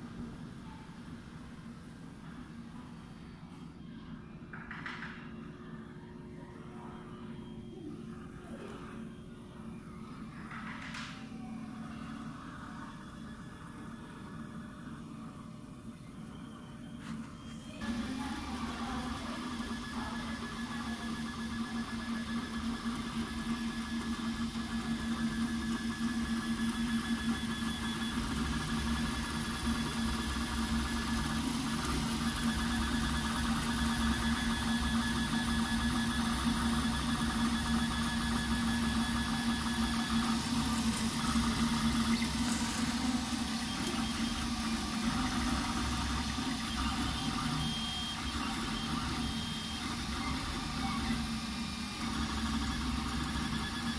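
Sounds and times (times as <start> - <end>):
steady hum: 5.2 - 53.9
stepper motors whining: 17.8 - 53.9.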